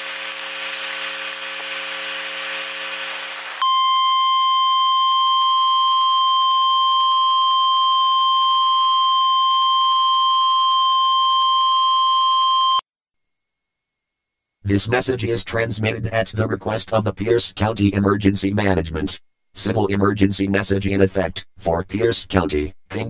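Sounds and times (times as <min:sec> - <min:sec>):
harsh electronic buzz: 0:00.0 - 0:04.4.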